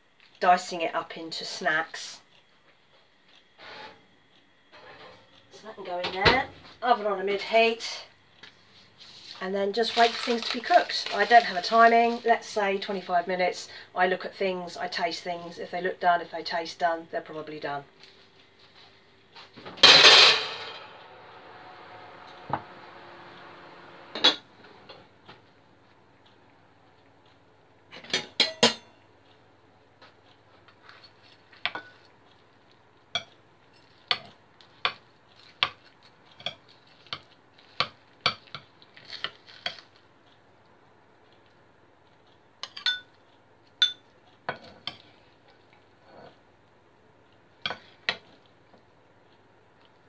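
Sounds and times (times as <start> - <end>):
metal spoon clinking on ceramic dish: 42.6 - 43.1, 43.8 - 44.0.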